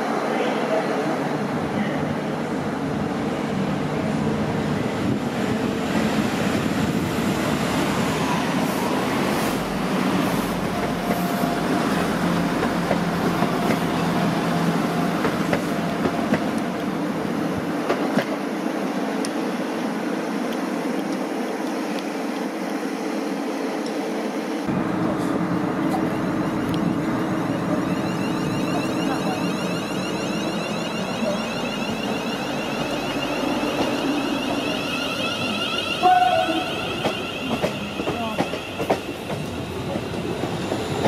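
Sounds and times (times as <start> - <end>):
diesel train engine rumble: 24.7 - 41.0.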